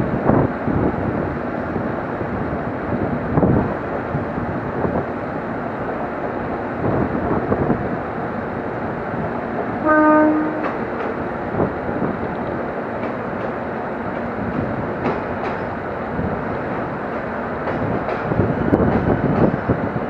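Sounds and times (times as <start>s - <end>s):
train rumble: 0.0s - 20.0s
train horn blast: 9.8s - 10.8s.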